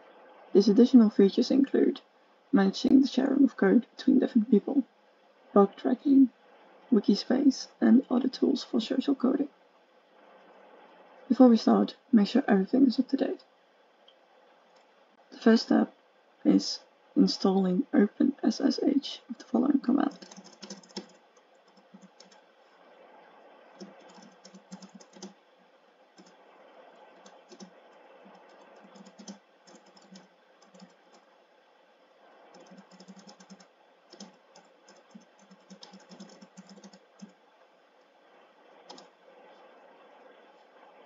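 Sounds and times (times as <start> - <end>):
faint keyboard typing: 14.7 - 14.9, 20.0 - 22.5, 23.7 - 25.4, 26.2 - 31.3, 32.4 - 37.4, 38.8 - 39.2.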